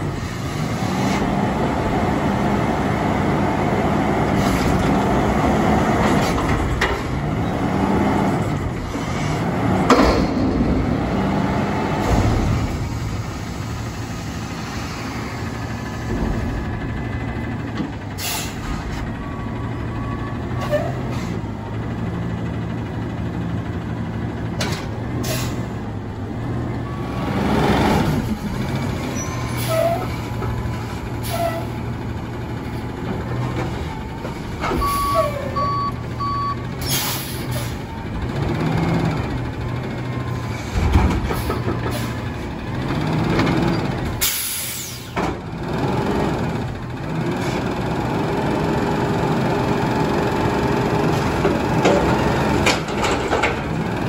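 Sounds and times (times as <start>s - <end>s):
garbage truck engine running: 0.0s - 54.0s
air brake hisses: 18.2s - 18.8s, 44.2s - 45.2s
backup alarm beeps: 34.8s - 36.6s.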